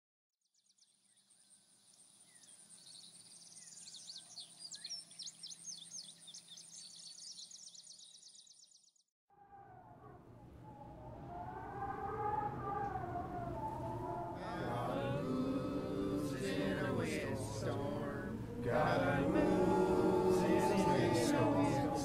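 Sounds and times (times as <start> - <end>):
birds chirping and trilling: 0.6 - 9.0
low wavering sound: 9.5 - 22.0.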